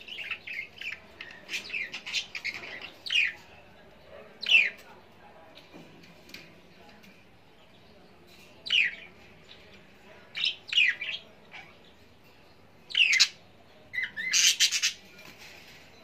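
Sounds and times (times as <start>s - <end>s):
bird chirping: 0.0s - 4.9s, 7.6s - 15.2s.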